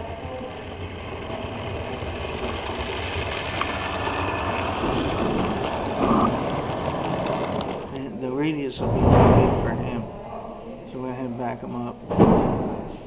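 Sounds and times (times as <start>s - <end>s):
model train wheels rumbling on track: 0.0s - 10.1s.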